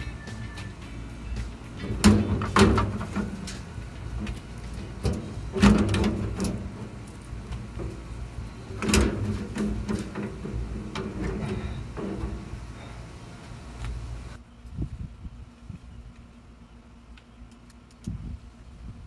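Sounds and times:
metal clanking and scraping: 0:01.7 - 0:13.4.

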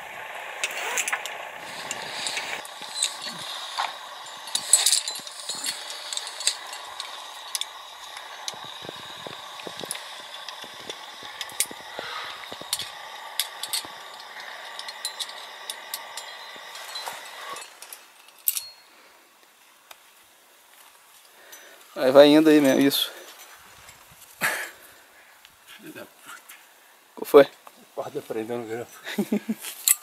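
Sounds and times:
sharp clicks: 0:00.6 - 0:18.6
metal climbing gear clinking: 0:00.6 - 0:19.0, 0:29.6 - 0:30.0
rustling: 0:00.6 - 0:21.8.

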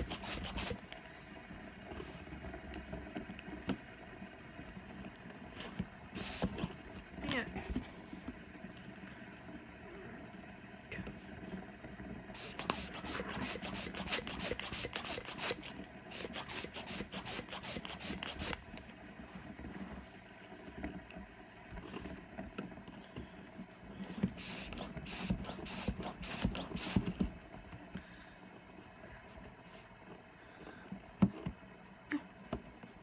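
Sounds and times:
hand pump puffing air: 0:00.0 - 0:00.9, 0:06.2 - 0:06.8, 0:12.4 - 0:18.6, 0:24.2 - 0:27.2.

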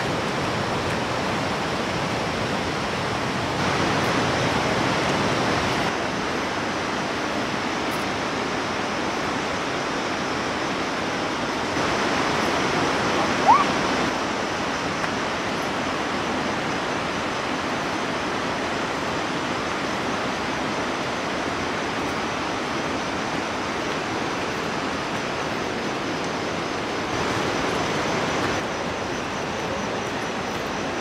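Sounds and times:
steady rushing noise: 0:00.0 - 0:31.0
short rising chirp: 0:13.4 - 0:13.8.

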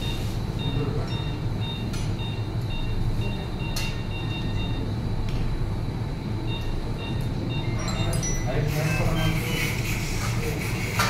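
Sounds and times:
high electronic beeps: 0:00.0 - 0:04.9, 0:06.4 - 0:09.8
steady low hum: 0:00.0 - 0:11.0.

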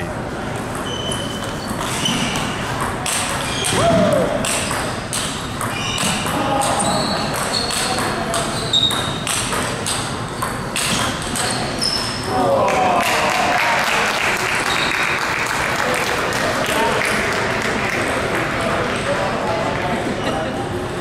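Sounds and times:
table tennis ball rally: 0:00.6 - 0:19.8.

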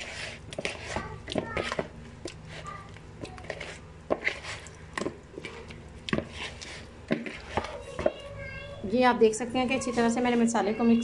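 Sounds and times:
hands squelching food in bowl: 0:00.0 - 0:08.4.

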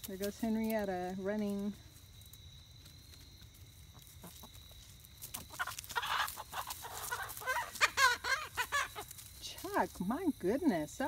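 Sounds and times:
chickens squawking and clucking: 0:03.6 - 0:10.2.

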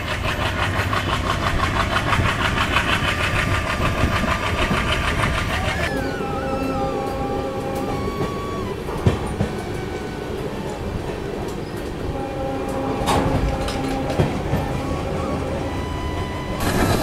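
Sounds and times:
train wheels rumbling on rail: 0:00.0 - 0:17.0
wheels clacking over rail joints: 0:00.0 - 0:17.0
faint steady drone: 0:05.0 - 0:17.0
faint whine dropping in pitch: 0:05.4 - 0:11.4, 0:12.1 - 0:17.0.

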